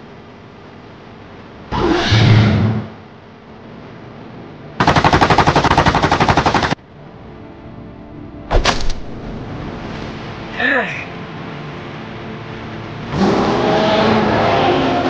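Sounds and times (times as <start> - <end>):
rapid rattle of sharp cracks: 4.8 - 6.8.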